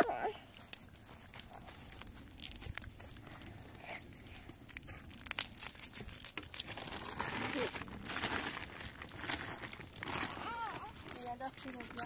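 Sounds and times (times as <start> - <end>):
plastic snack packet crinkling: 4.7 - 12.0.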